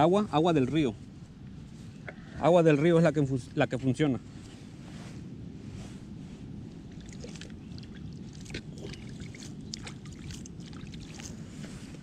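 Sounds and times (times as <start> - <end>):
steady low rumble: 0.0 - 12.0
water dripping: 6.9 - 11.4
water splashing into a bowl: 7.0 - 11.3.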